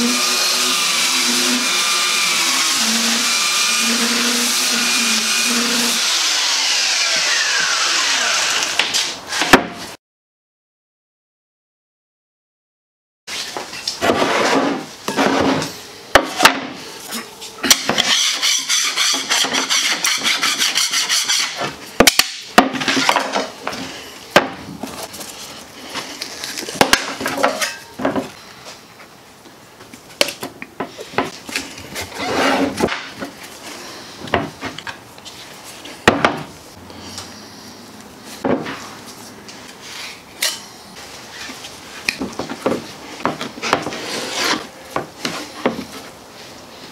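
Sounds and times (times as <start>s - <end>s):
putty knife scraping: 17.1s - 21.8s, 43.6s - 45.6s.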